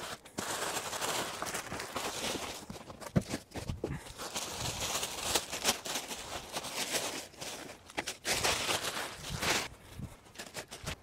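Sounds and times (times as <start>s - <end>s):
plastic bag crinkling: 0.0s - 11.0s.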